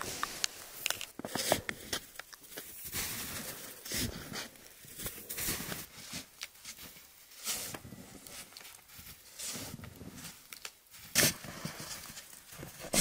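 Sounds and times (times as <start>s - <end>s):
snow shovel scraping: 12.7s - 13.0s.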